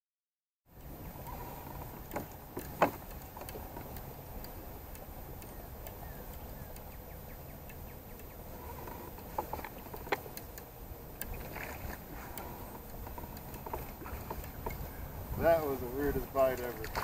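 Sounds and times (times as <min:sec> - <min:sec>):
wind and water rumble: 0:00.7 - 0:17.0.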